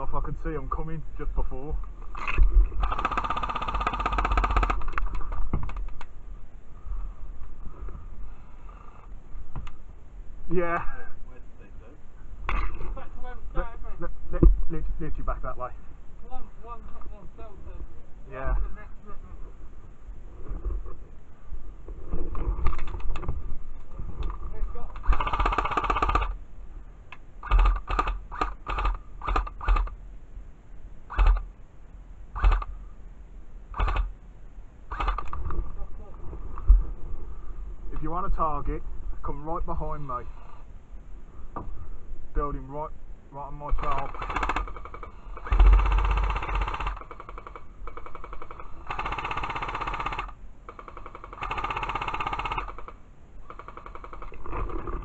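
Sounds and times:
airsoft rifle firing bursts: 2.8s - 5.0s, 25.0s - 26.4s, 27.4s - 30.0s, 31.1s - 31.5s, 32.4s - 32.7s, 33.7s - 34.1s, 43.8s - 54.4s
weak rattle: 43.7s - 55.0s.

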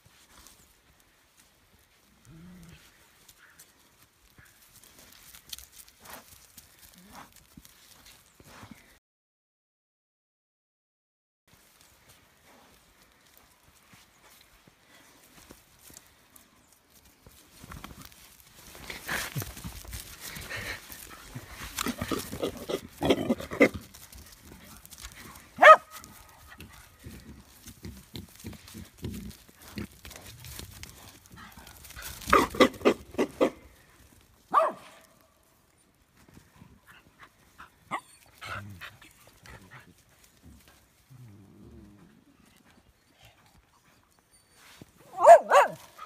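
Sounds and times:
pig grunting: 20.3s - 24.1s, 31.0s - 33.8s.

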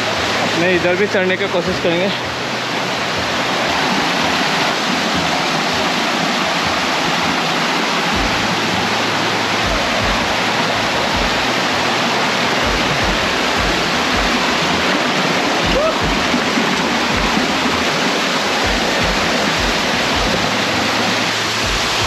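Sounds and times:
waterfall rushing: 0.0s - 22.0s
low thumps: 8.1s - 9.0s, 9.6s - 11.8s, 12.5s - 22.0s.

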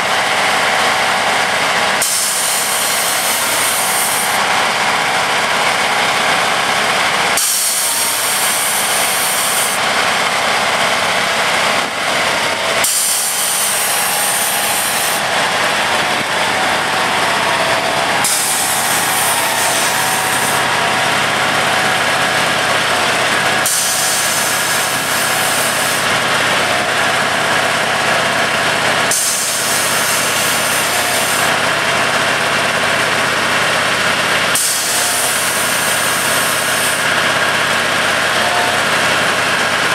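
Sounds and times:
machine engine and hydraulics running: 0.0s - 39.9s
high hiss: 23.6s - 26.1s.

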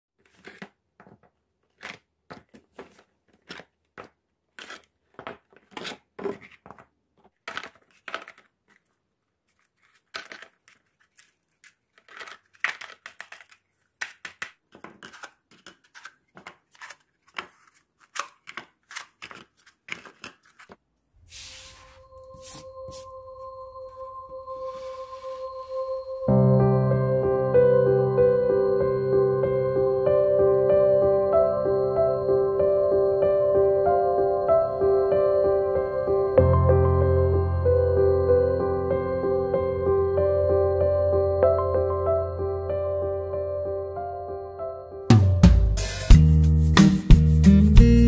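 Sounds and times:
plastic pots clicking: 0.2s - 20.8s
rustling of moss and pots: 0.2s - 23.1s
soft music with steady tones: 21.6s - 48.0s.

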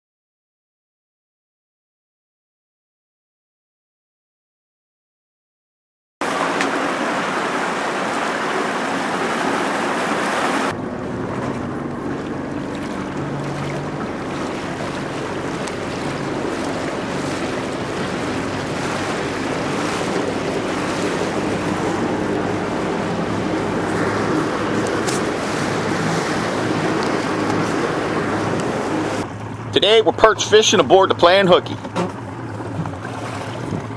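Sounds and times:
boat engine drone: 6.2s - 33.9s
water rushing past hull: 6.2s - 33.9s
wind on microphone: 6.3s - 29.3s, 32.6s - 33.9s.

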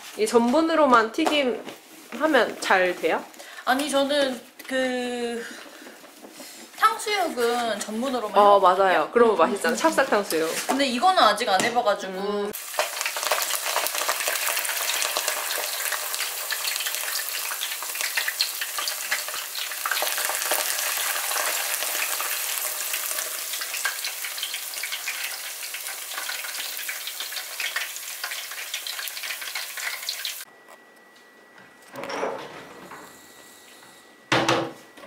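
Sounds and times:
blossoms deep-frying in hot oil: 12.5s - 30.5s.

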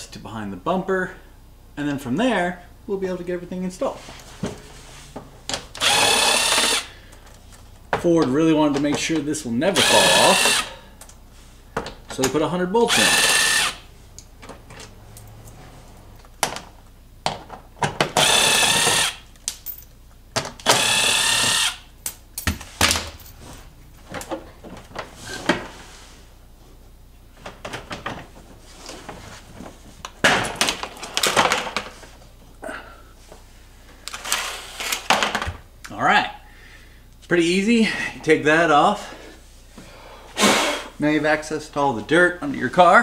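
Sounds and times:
cordless drill whining: 5.8s - 6.9s, 9.8s - 10.8s, 12.8s - 13.9s, 18.2s - 19.3s, 20.6s - 21.9s.

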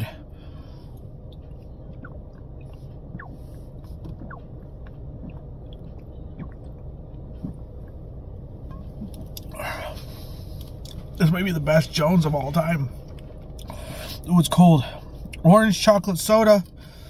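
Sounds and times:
steady low rumble: 0.0s - 17.0s
person gulping soda: 1.3s - 8.0s.

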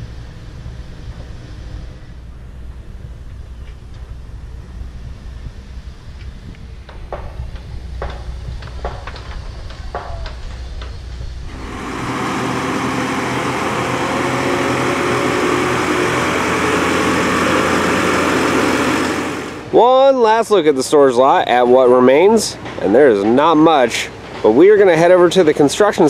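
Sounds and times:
diesel engine driving by: 11.5s - 20.4s.

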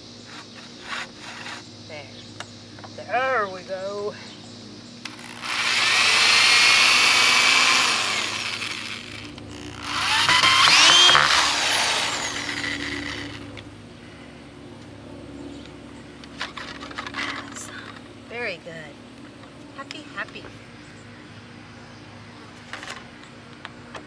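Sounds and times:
electric drill whining: 5.1s - 13.6s.

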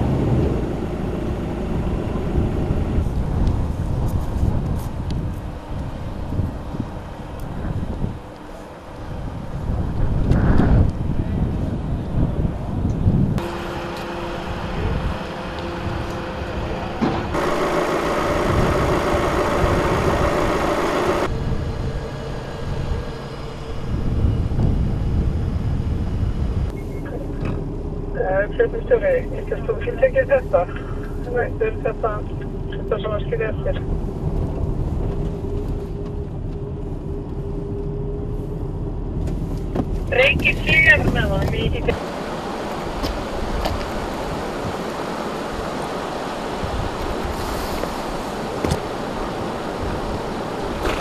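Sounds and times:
steady hum: 0.0s - 51.0s
wind rumbling on microphone: 0.0s - 51.0s.

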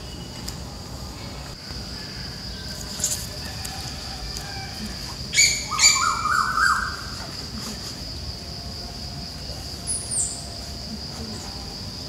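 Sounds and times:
bird calls: 5.3s - 7.4s.

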